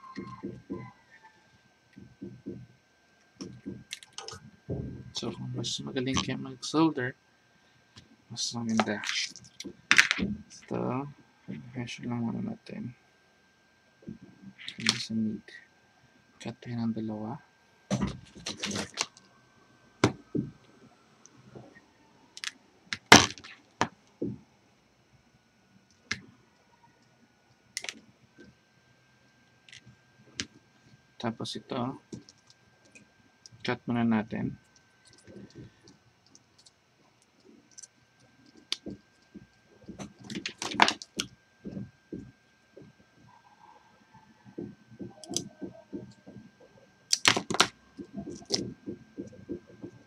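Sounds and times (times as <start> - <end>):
wire strippers set down: 8.7 - 10.7, 17.9 - 19.2, 22.4 - 24.0, 39.8 - 41.9, 47.1 - 50.0
sharp crack: 22.4 - 23.6
hand tools clicking on plastic mat: 38.5 - 42.3, 44.6 - 46.4, 47.1 - 50.0
sharp clicks: 45.2 - 46.2.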